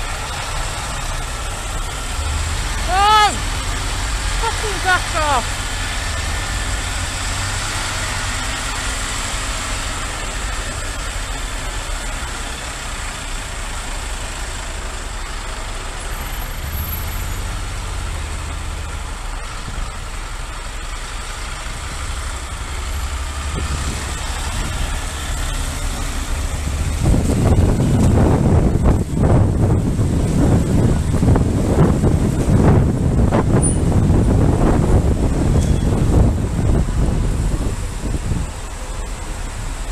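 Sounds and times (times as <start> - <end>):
coach engine rumble: 0.0 - 39.9
motorcycle engine rumble: 0.0 - 39.9
wind noise on microphone: 23.0 - 39.9.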